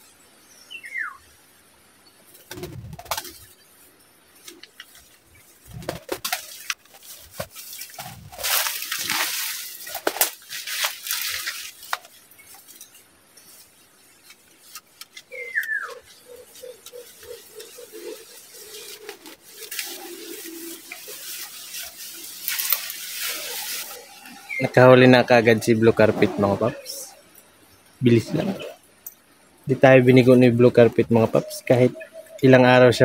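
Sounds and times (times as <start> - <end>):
leaves and twigs rustling: 2.0 - 33.0
dove hooting: 15.2 - 24.8, 26.2 - 27.3, 30.9 - 33.0.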